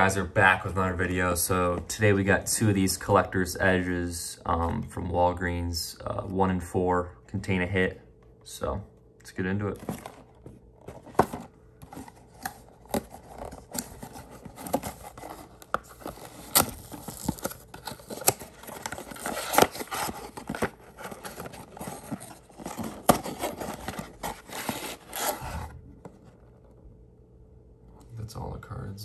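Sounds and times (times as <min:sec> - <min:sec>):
cardboard scraping and tearing: 0:10.9 - 0:25.7
foil packs crinkling: 0:12.0 - 0:25.4.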